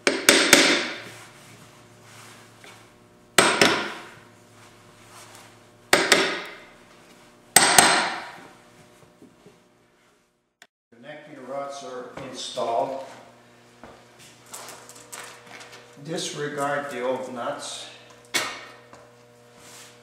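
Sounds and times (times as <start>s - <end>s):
hammer striking steel rods: 0.0s - 1.0s, 3.4s - 4.2s, 5.9s - 6.6s, 7.6s - 8.4s.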